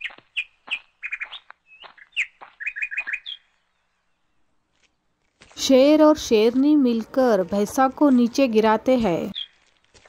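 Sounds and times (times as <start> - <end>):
bird chirping: 0.0 - 5.1, 9.2 - 9.7.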